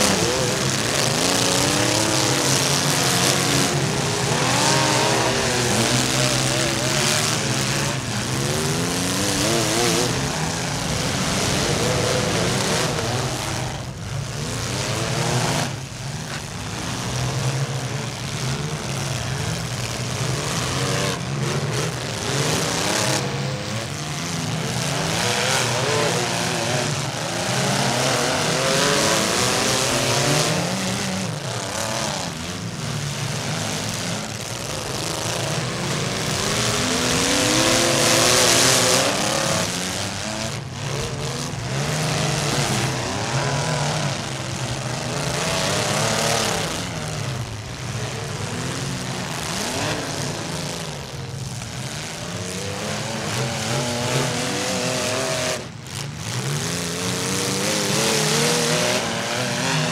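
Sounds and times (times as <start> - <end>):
car engines revving: 0.0 - 59.9.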